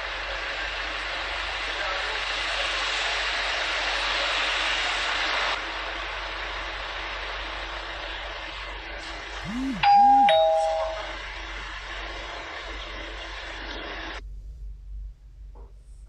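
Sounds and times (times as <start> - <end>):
two-note doorbell chime: 9.6 - 11.2.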